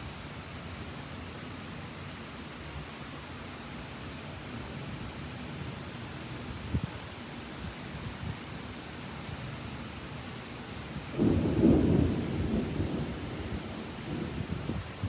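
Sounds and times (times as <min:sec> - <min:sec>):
steady rain: 0:00.0 - 0:15.0
thunder rumble: 0:11.2 - 0:15.0.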